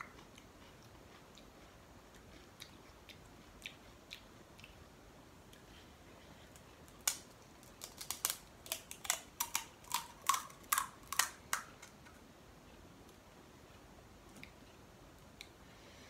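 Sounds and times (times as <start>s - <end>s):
crisp shell crackling: 6.9s - 12.1s.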